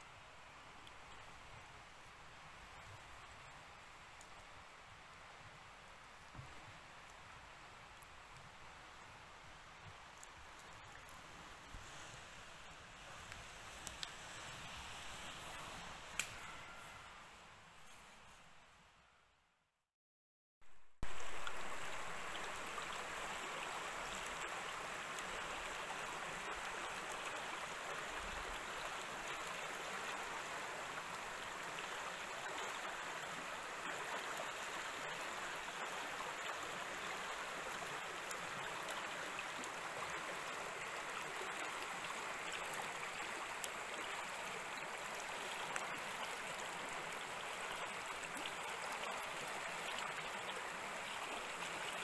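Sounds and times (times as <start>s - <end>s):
brook rippling over stones: 21.0s - 52.0s.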